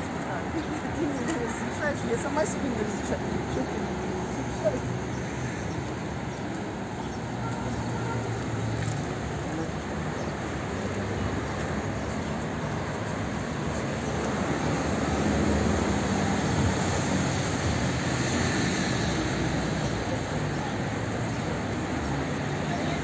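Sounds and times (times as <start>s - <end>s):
road traffic passing: 0.0s - 23.0s.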